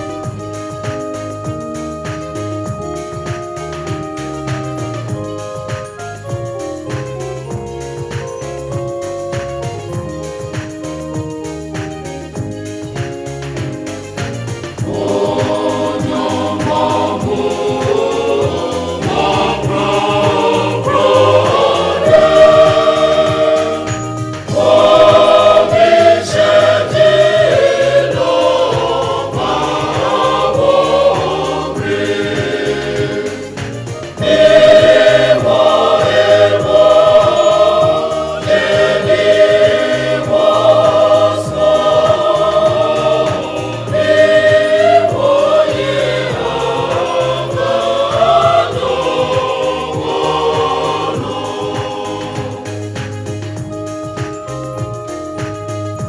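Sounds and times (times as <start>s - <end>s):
choir singing a hymn: 14.7s - 53.2s.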